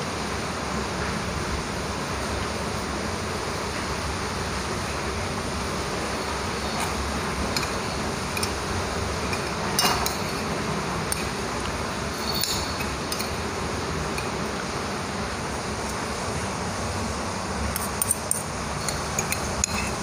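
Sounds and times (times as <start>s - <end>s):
steady background hiss: 0.0s - 20.0s
metal fork clinking on plate: 12.1s - 13.4s, 17.8s - 20.0s.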